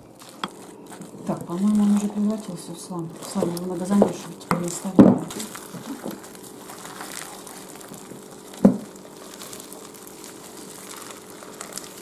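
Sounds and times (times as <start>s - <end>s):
hands squeezing sticky slime: 3.1s - 12.0s.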